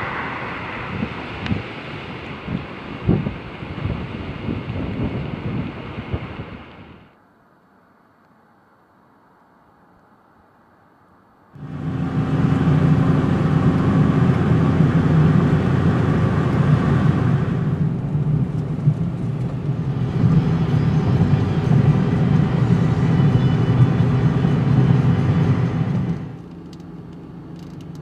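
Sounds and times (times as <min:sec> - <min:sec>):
car engine and road noise: 0:00.0 - 0:28.0.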